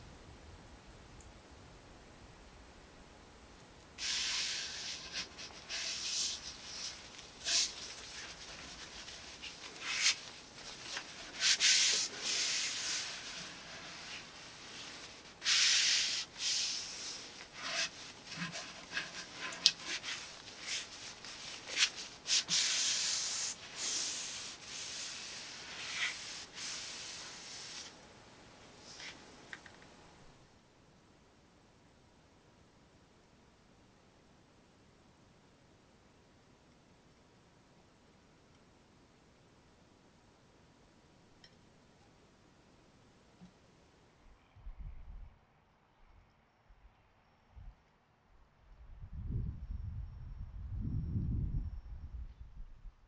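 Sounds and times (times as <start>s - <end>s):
rag rubbing on wooden handle: 4.0s - 27.9s.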